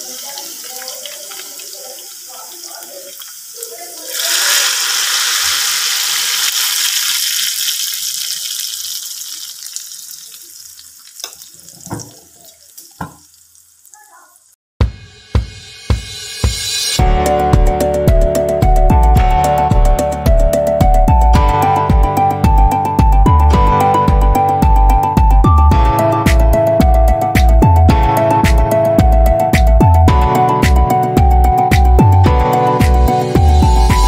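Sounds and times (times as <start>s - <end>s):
hot oil sizzling: 0.0s - 14.6s
music with a beat: 14.8s - 34.0s.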